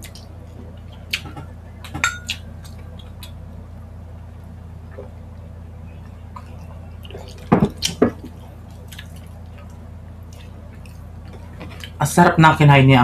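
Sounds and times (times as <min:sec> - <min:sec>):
glass mugs clinking: 0:02.0 - 0:02.3.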